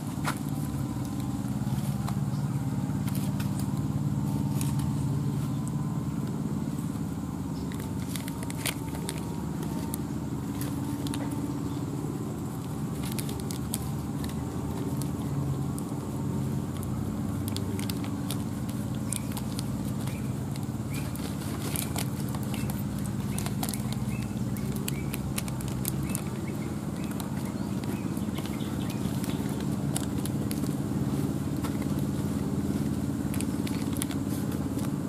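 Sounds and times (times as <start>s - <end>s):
engine humming: 0.0s - 35.0s
plastic sheet crackling: 12.4s - 35.0s.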